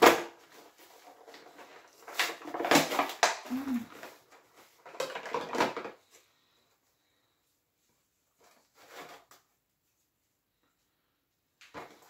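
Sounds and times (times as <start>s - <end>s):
packaging rustling and scraping: 0.0s - 6.5s, 8.0s - 9.6s
short low vocal sound: 3.5s - 4.0s.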